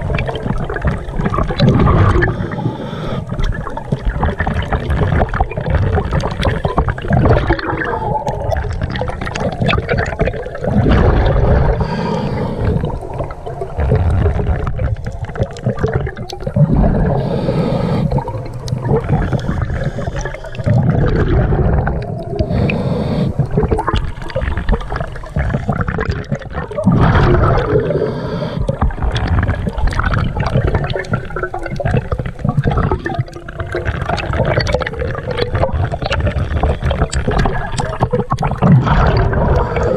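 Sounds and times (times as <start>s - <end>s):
exhaled bubbles gurgling: 0.0s - 39.9s
regulator inhalation hiss: 11.8s - 13.0s, 17.0s - 18.4s, 22.4s - 23.5s, 27.9s - 28.7s.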